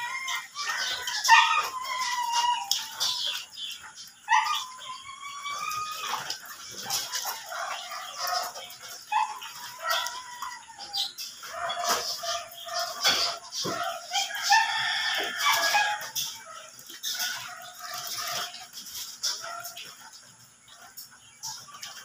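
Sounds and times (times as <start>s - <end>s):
rooster crowing: 0.0s - 3.1s, 13.9s - 16.2s
chickens clucking: 0.0s - 22.0s.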